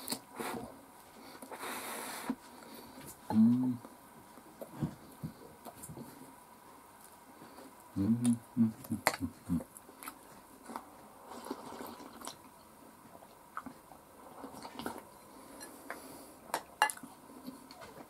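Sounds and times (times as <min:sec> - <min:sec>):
chewing: 0:08.2 - 0:12.6, 0:14.4 - 0:16.0
slurping soup: 0:11.2 - 0:12.4.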